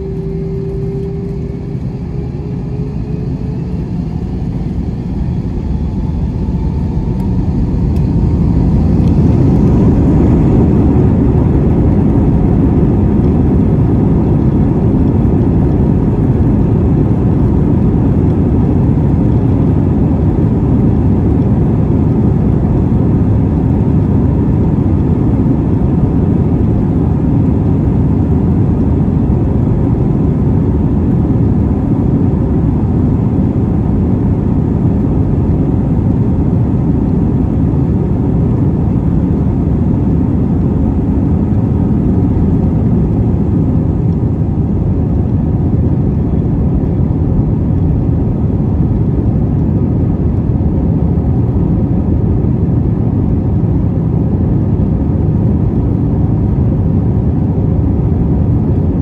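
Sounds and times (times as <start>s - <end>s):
jet engines low rumble: 0.0s - 59.0s.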